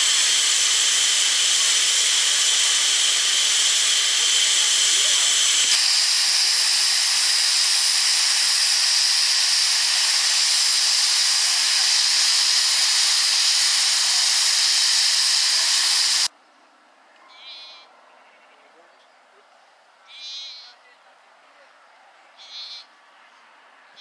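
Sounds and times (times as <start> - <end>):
steam hissing from locomotive: 0.0 - 16.3.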